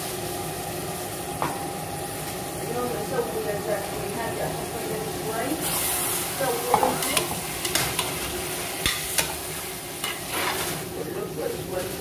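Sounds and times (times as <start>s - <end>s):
frying sizzle: 0.0s - 12.0s
utensil scraping metal pot: 5.6s - 9.4s, 10.0s - 10.8s.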